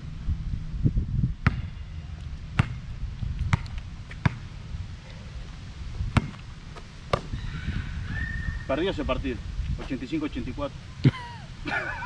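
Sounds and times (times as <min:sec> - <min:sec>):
low wind rumble on microphone: 0:00.0 - 0:12.0
basketball bouncing on hard court: 0:01.4 - 0:01.7, 0:02.6 - 0:02.8, 0:03.5 - 0:04.4, 0:06.1 - 0:06.4.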